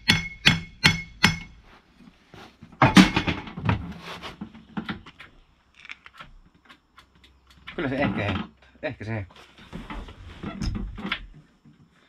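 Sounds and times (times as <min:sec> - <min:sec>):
loud metal clunk: 0:02.8 - 0:03.8.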